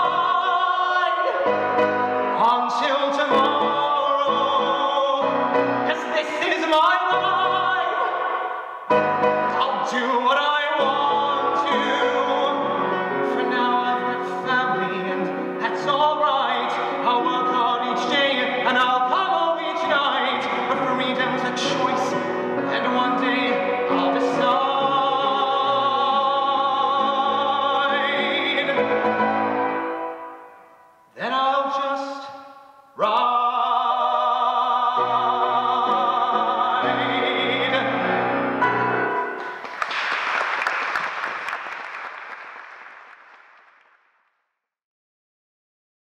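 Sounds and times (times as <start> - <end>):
piano accompaniment: 0.0 - 31.2, 33.2 - 41.8
man singing with vibrato: 0.0 - 39.6
applause: 39.4 - 44.4.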